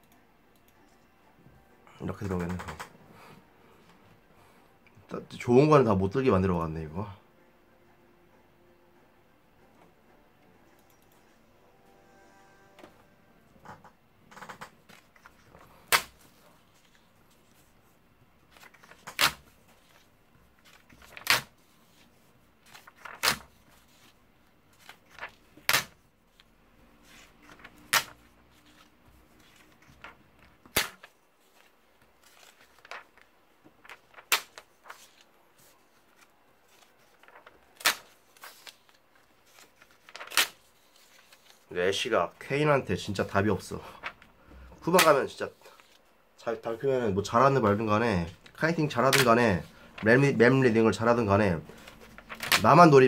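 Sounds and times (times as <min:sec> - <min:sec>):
paper sheets snapping: 0:14.6 - 0:17.0, 0:18.5 - 0:20.0, 0:20.6 - 0:21.6, 0:22.6 - 0:24.1, 0:24.8 - 0:26.0, 0:27.2 - 0:33.2, 0:33.8 - 0:35.3, 0:36.2 - 0:41.6, 0:49.0 - 0:49.4, 0:51.8 - 0:52.7
paper rustling: 0:14.6 - 0:42.4, 0:43.0 - 0:46.1, 0:47.1 - 0:53.0.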